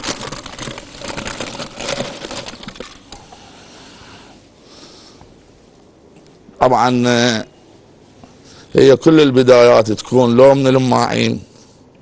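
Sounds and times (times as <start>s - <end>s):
shredded cheese pattering: 0.0s - 3.2s.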